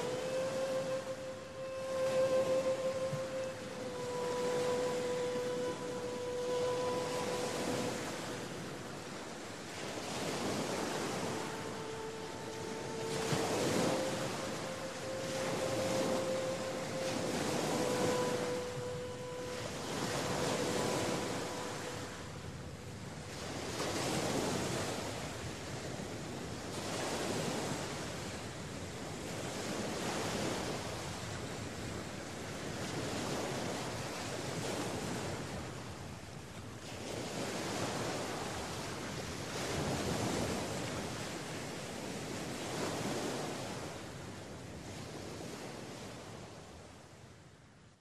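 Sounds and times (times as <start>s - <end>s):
faint steady tone: 0.0s - 27.0s
sea surf washing onto shore: 0.0s - 47.0s.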